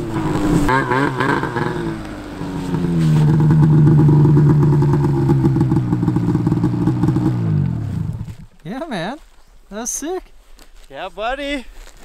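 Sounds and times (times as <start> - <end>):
snowmobile engine droning: 0.0 - 8.3.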